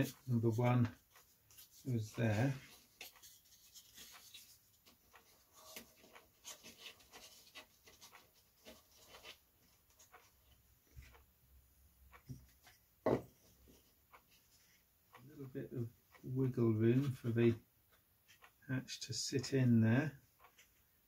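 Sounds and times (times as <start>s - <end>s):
hands rustling and clicking wood: 0.0s - 11.3s
soft knock: 13.0s - 13.3s.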